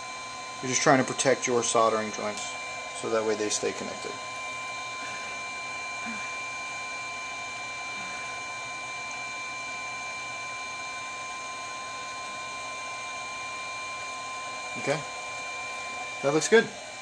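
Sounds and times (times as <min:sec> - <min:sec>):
high-pitched whine: 0:14.6 - 0:15.2, 0:15.8 - 0:16.7.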